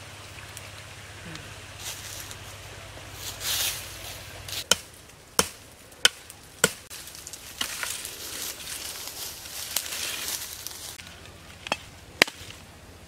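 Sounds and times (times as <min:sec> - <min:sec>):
machete chopping sapling: 0:04.5 - 0:08.0, 0:11.6 - 0:12.6.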